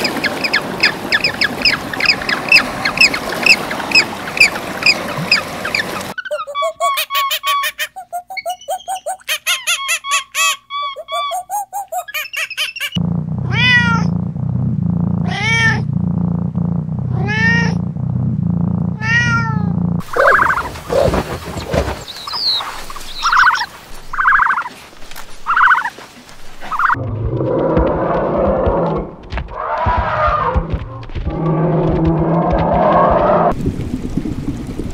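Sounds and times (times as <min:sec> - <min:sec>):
high squeaky chattering calls: 0:00.0 - 0:13.0, 0:22.0 - 0:24.7
soft chirping calls: 0:00.0 - 0:13.0, 0:20.1 - 0:24.7, 0:25.5 - 0:25.9
low steady hum: 0:13.0 - 0:22.0
cat meowing: 0:13.5 - 0:14.1, 0:15.2 - 0:15.8, 0:17.2 - 0:17.8, 0:19.0 - 0:19.7.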